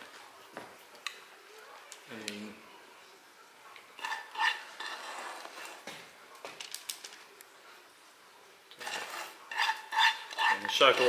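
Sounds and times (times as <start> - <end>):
spatula scraping a pan: 4.0 - 5.9, 8.8 - 11.0.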